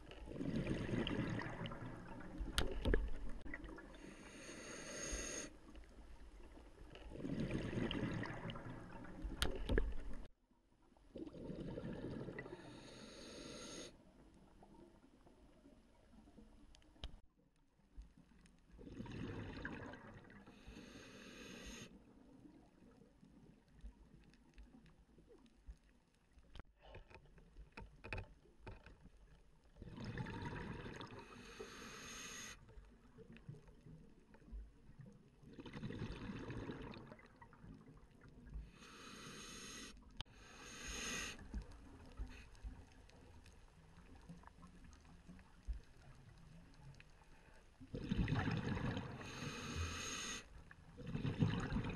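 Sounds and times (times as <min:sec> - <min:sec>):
exhaled bubbles rushing underwater: 0:00.2 - 0:04.0, 0:07.1 - 0:10.3, 0:29.8 - 0:31.2, 0:47.9 - 0:49.4, 0:51.0 - 0:51.9.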